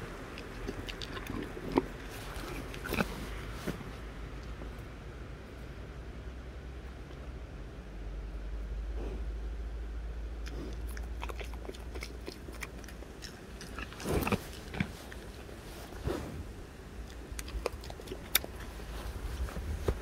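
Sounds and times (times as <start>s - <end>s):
animal chewing carrot: 0.0s - 4.5s, 10.4s - 20.0s.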